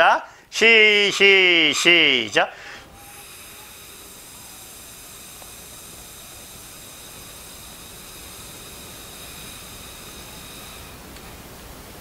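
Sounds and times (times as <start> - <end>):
breath blown through a straw: 1.7 - 11.0.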